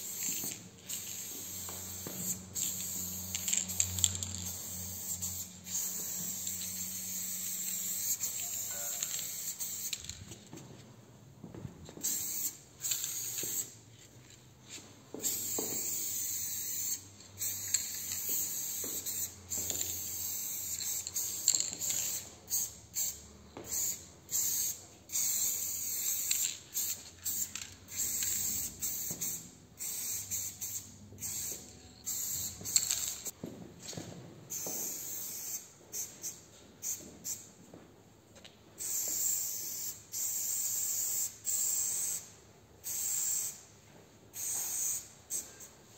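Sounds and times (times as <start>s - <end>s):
spray paint can hissing: 0.0s - 10.2s, 12.0s - 13.8s, 15.2s - 33.4s, 34.5s - 37.4s, 38.8s - 43.6s, 44.3s - 45.5s.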